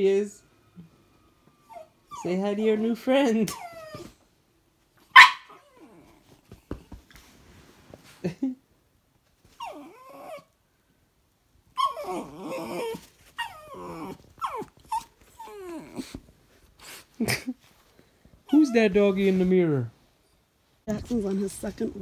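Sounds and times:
puppy whining: 0.8 - 4.3, 5.1 - 6.9, 9.4 - 10.6, 11.7 - 17.1, 18.5 - 19.4
puppy barking: 5.1 - 5.9
puppy yipping: 5.1 - 6.0, 9.6 - 10.5, 11.8 - 16.1.

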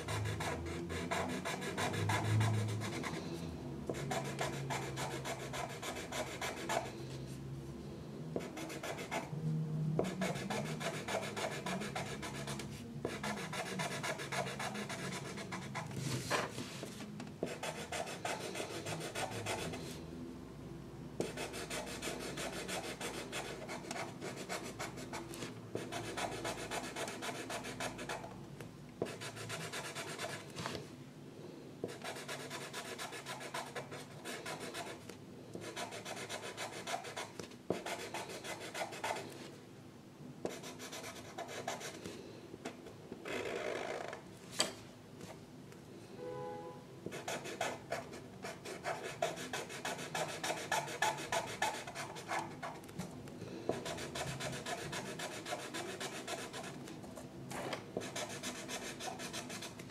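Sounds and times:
drawing tool rubbing on paper: 47.2 - 52.8.

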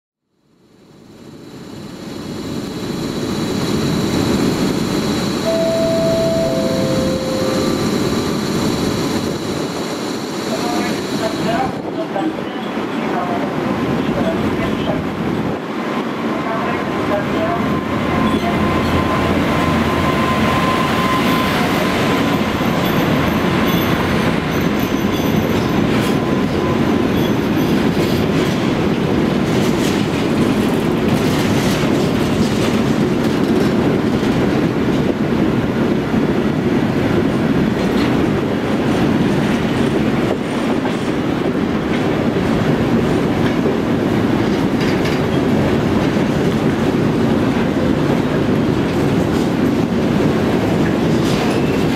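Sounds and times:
high tone from locomotive: 1.2 - 11.8, 16.6 - 28.2
train wheels rumbling on rail: 1.2 - 51.9.

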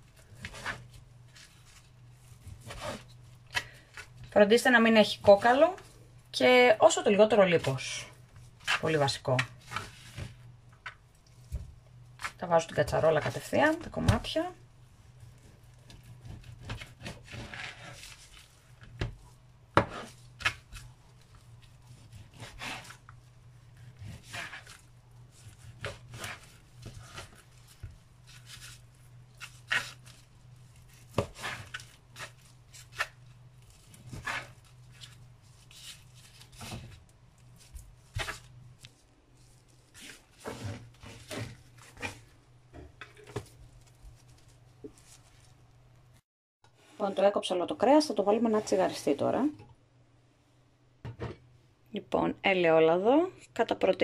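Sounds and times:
knife cutting meat on a board: 15.8 - 18.2, 21.9 - 23.1, 25.4 - 30.2, 30.8 - 35.2.

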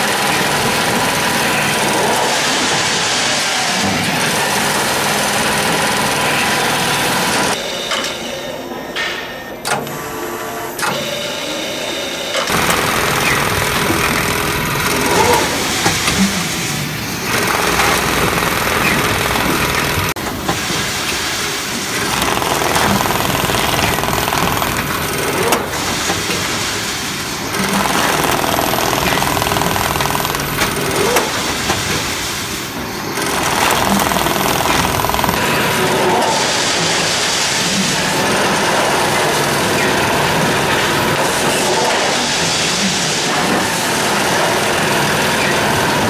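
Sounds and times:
bag sewing machine rattling: 12.5 - 16.3, 17.1 - 20.2, 21.9 - 25.9, 27.4 - 32.2, 33.0 - 35.7.

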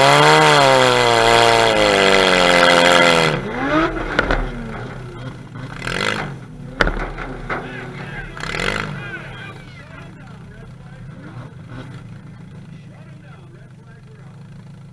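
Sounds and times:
car engine revving: 0.0 - 14.9
sharp knock: 4.0 - 5.0, 6.1 - 7.8.

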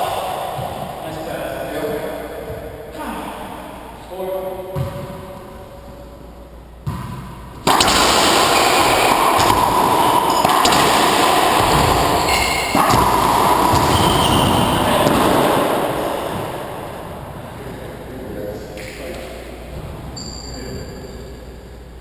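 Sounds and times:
echoing rush of noise: 0.0 - 20.2
ball smacking racquets and walls: 6.8 - 17.4
sneakers squeaking on hardwood: 10.2 - 16.4.

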